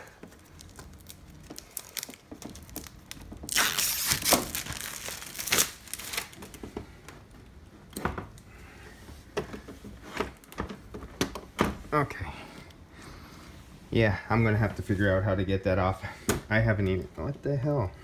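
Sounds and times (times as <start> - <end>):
packing tape peeling and crinkling: 0.0 - 6.6.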